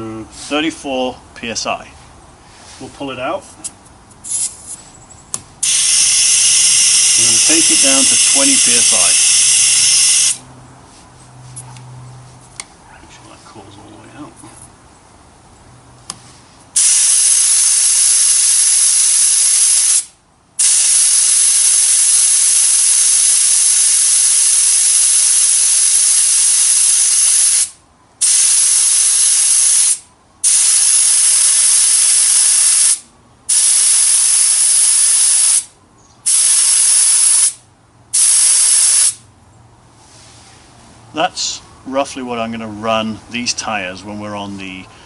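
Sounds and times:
air hissing out of tyre: 4.2 - 4.9, 5.6 - 10.4, 16.2 - 39.2.

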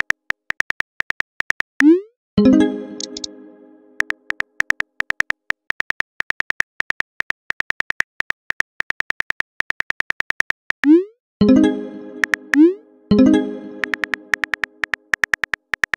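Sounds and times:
phone keyboard typing clicks: 3.0 - 3.3, 12.2 - 12.6, 13.8 - 15.9.

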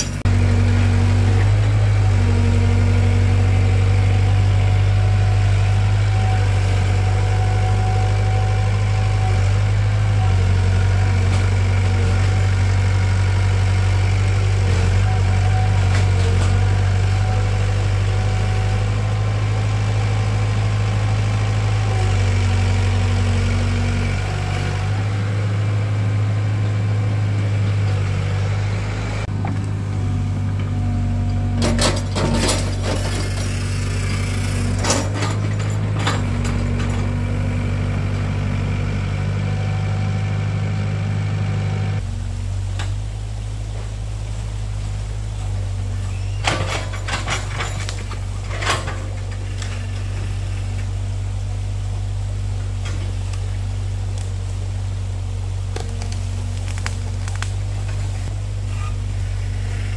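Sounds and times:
diesel engine running loudly: 0.0 - 42.2.

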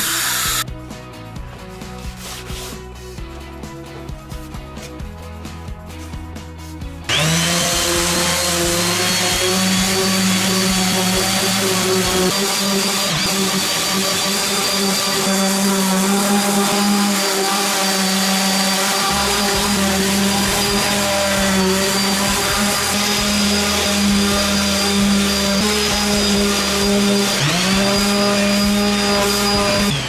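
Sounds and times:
wood router spinning: 0.0 - 0.6, 7.1 - 30.0.

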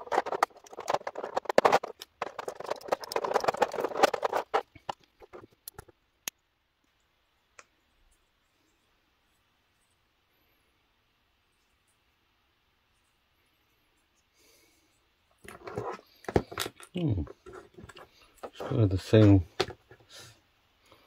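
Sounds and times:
plastic parts clicking and rattling: 0.0 - 6.0, 15.4 - 20.1.

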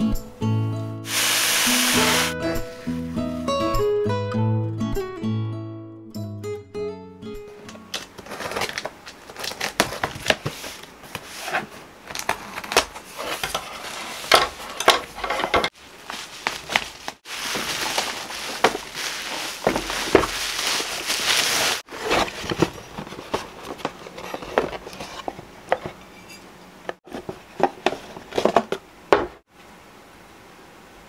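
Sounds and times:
bubble wrap crinkling: 1.1 - 2.3, 7.9 - 13.4, 15.8 - 23.8
cardboard and paper rustling: 7.9 - 26.0, 27.0 - 29.4.

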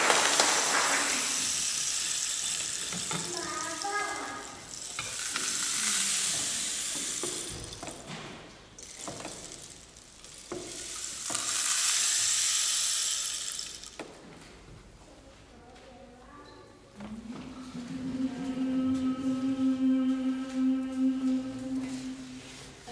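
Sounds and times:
rain stick trickling: 1.2 - 8.1, 8.8 - 14.0.

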